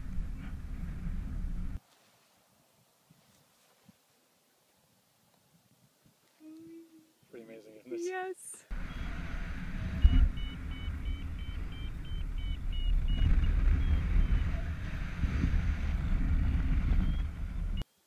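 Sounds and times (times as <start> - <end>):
wind buffeting microphone: 0.0 - 1.8, 8.7 - 17.8
variometer beeping rapidly: 9.8 - 14.7.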